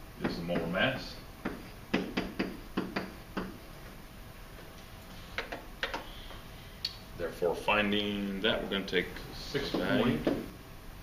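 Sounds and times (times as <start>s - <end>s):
pen tapping on whiteboard: 1.4s - 3.6s.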